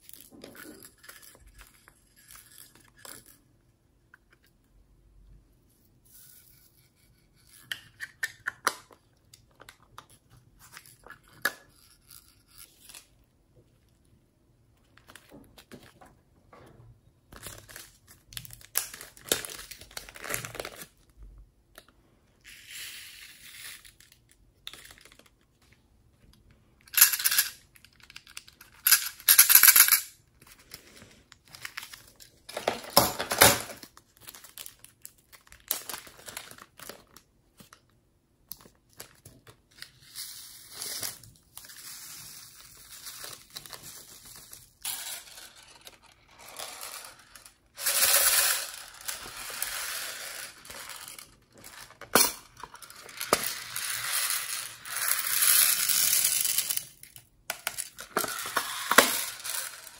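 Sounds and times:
plastic bags crinkling: 30.5s - 37.8s
beads falling into glass tray: 44.8s - 59.9s.

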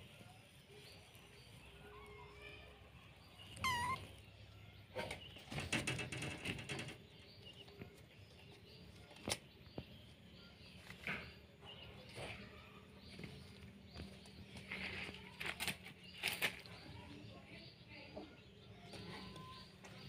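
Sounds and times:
faint bird chirps: 0.1s - 20.0s
kitten mewing: 3.6s - 4.1s.

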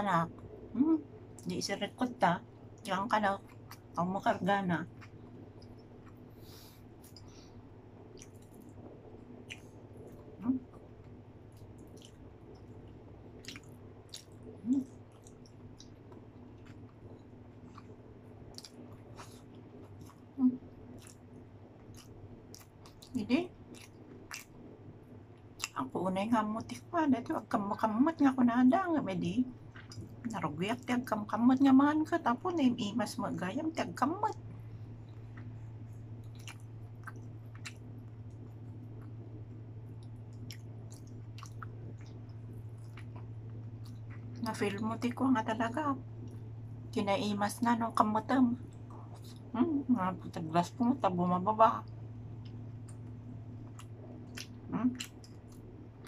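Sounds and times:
steady low hum: 0.0s - 56.0s
chewing with lip smacks: 2.8s - 4.0s, 4.9s - 24.8s, 25.4s - 26.0s, 29.6s - 30.4s, 34.2s - 45.1s, 51.8s - 56.0s.

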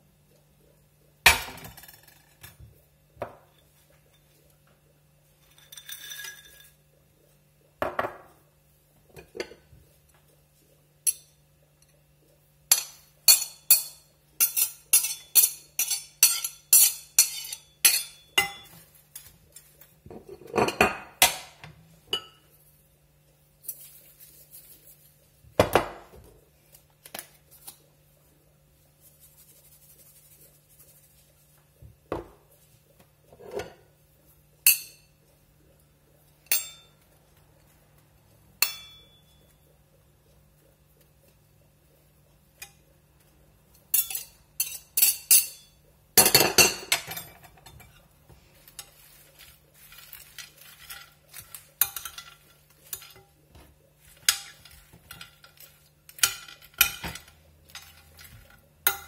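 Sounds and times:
cutlery scraping ceramic plates: 5.4s - 6.8s, 12.7s - 22.5s, 33.3s - 33.9s, 43.8s - 59.0s.

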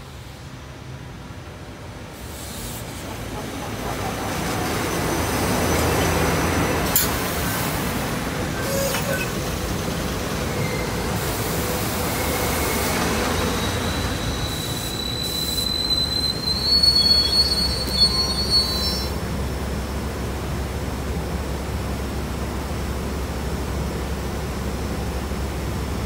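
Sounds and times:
electric train rumbling past: 0.0s - 26.0s
high squeal rising in pitch: 12.1s - 19.2s.

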